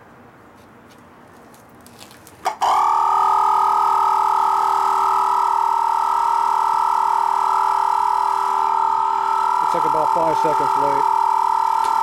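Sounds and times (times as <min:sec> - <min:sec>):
tire inflator pumping: 0:03.9 - 0:12.0.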